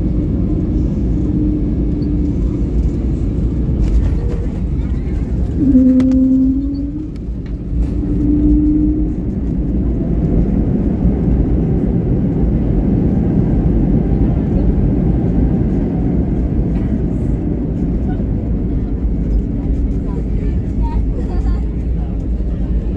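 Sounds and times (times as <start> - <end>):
jet engines and wheels rumbling: 0.0 - 22.9
short low tone: 5.6 - 7.2.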